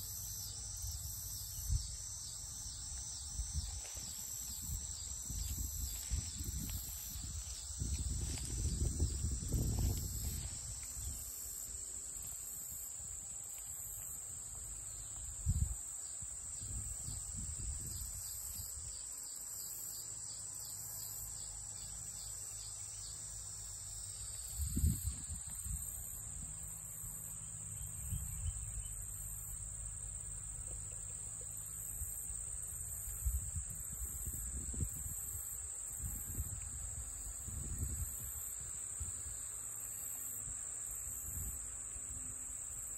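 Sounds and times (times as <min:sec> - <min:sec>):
higher pulsing insect song: 0:00.0 - 0:42.9
insects trilling: 0:00.0 - 0:42.9.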